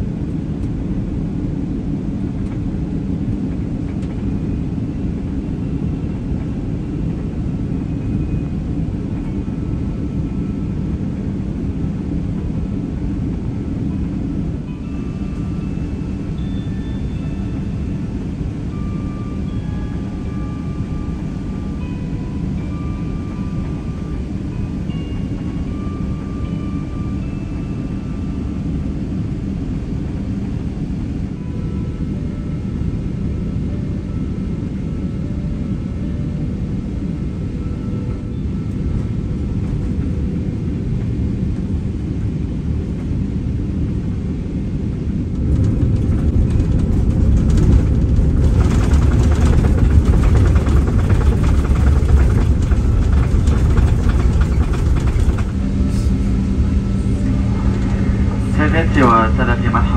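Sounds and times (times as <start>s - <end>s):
jet engine rumble and airflow: 0.0s - 59.9s
reverse thrust roar: 45.3s - 59.9s.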